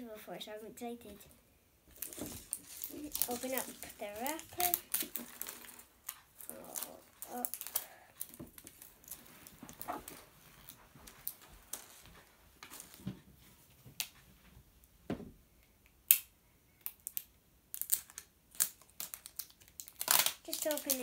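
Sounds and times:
plastic wrapping rustling and clicking: 1.9s - 14.2s, 16.8s - 21.0s.

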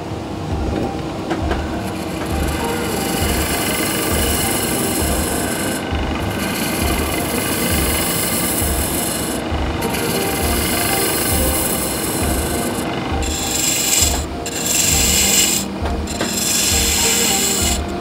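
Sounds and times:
wood lathe low throb: 0.5s - 18.0s
chisel scraping spinning wood: 1.6s - 18.0s.

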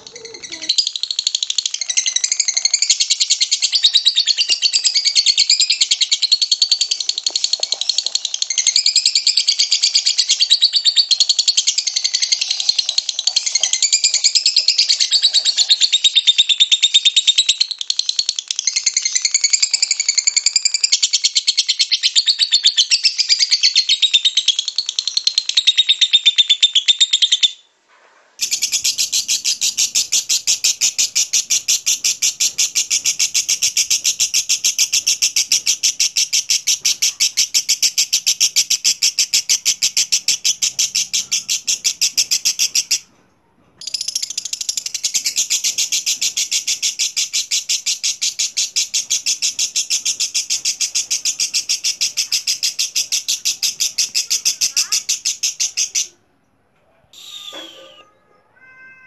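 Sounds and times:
lovebird chattering trill: 0.0s - 27.5s, 28.4s - 43.0s, 43.8s - 56.1s
bird call: 57.1s - 58.2s.

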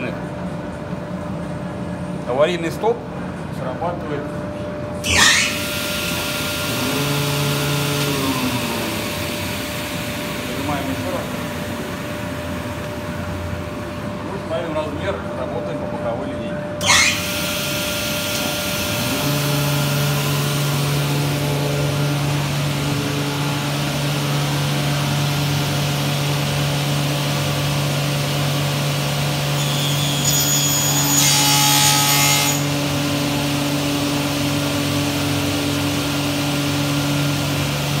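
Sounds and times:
saw blade cutting wood: 5.0s - 8.9s, 16.8s - 17.6s, 29.6s - 32.8s
panel saw humming: 5.0s - 13.8s, 16.8s - 28.0s.

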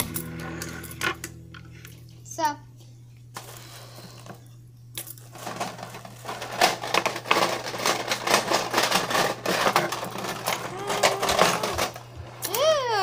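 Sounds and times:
plastic bag crinkling: 5.2s - 12.4s.

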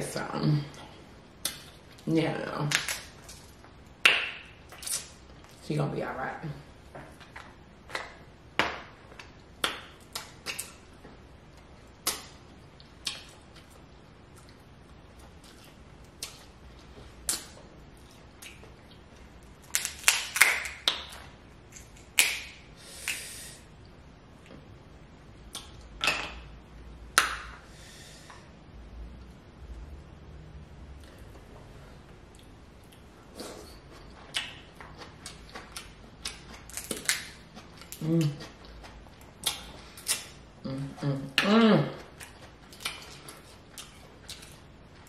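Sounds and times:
crab shells cracking: 19.7s - 21.2s.

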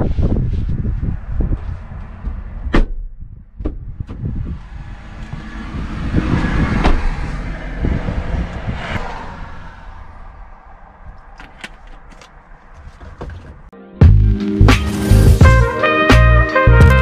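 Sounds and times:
car door unlatching with clicks: 11.3s - 13.6s.

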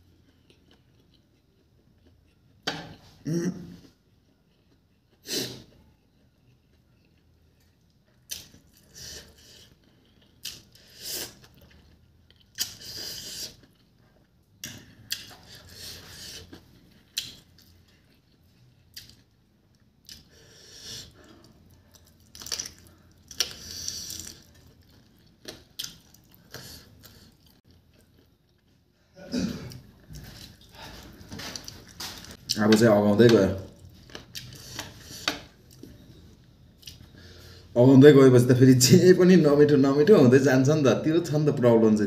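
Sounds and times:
wet chewing and crunching: 9.6s - 20.3s, 21.0s - 28.8s.

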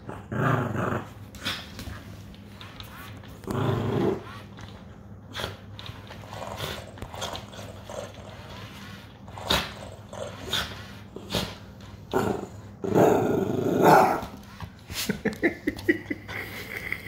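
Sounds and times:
dog growling: 0.0s - 1.6s, 3.4s - 4.4s, 9.3s - 14.2s.

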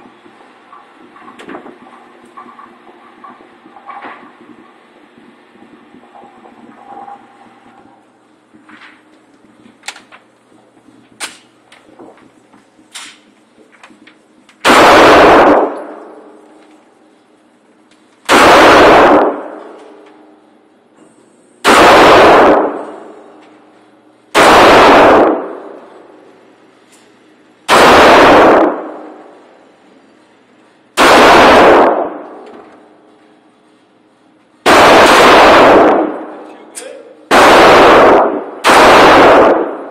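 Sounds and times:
handgun shots with ringing echo: 14.6s - 16.2s, 18.3s - 19.8s, 21.6s - 23.1s, 24.4s - 25.6s, 27.7s - 29.2s, 31.0s - 32.4s, 37.3s - 39.9s.

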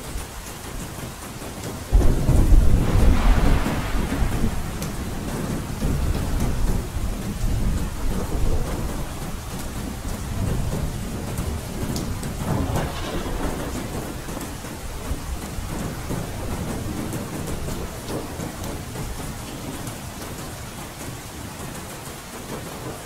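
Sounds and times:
raindrops ticking: 0.0s - 23.0s
steady rain falling: 0.0s - 23.0s
low thunder rumble: 1.9s - 19.6s.

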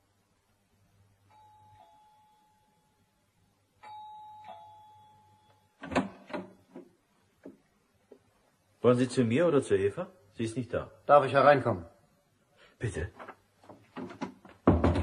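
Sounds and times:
doorbell ringing: 1.3s - 3.0s, 3.8s - 5.8s
door clicks and knocks: 5.8s - 7.6s, 13.7s - 15.0s.

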